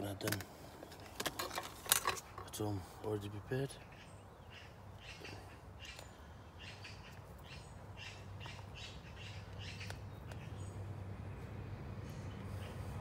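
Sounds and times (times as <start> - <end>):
faint outdoor hum: 0.0 - 13.0
bird squawking: 3.8 - 10.6.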